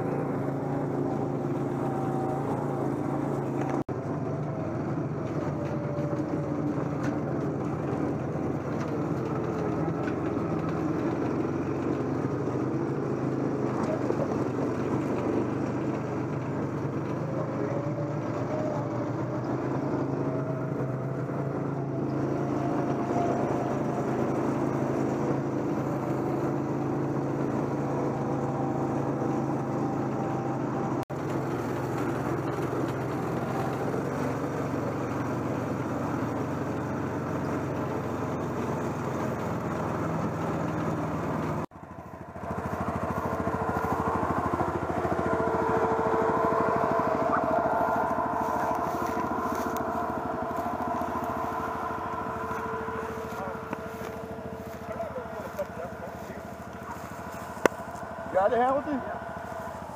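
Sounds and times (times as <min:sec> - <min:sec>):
utility vehicle engine running: 0:00.0 - 0:59.9.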